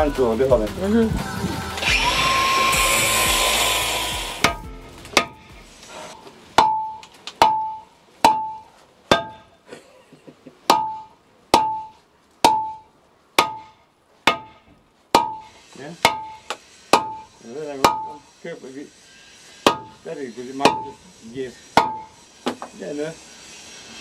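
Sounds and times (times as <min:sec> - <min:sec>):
power tool grinding: 0:00.0 - 0:06.2, 0:15.4 - 0:24.0
hammer blows on steel: 0:19.6 - 0:21.0.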